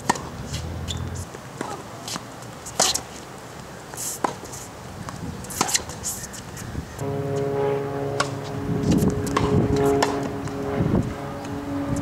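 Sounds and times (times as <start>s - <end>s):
tennis racket hitting ball: 5.5s - 6.0s, 7.0s - 10.8s
droning hum of held tones: 7.0s - 12.0s.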